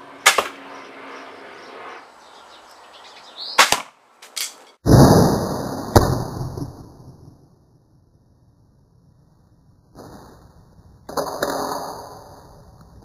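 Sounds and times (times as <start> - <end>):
bolt striking target: 0.2 - 0.6
crossbow firing snap: 0.3 - 0.6, 3.6 - 4.4.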